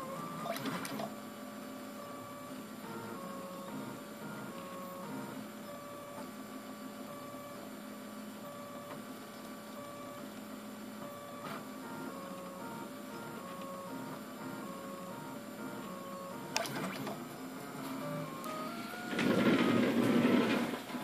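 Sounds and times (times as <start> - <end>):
stepper motors whining: 11.0 - 21.0.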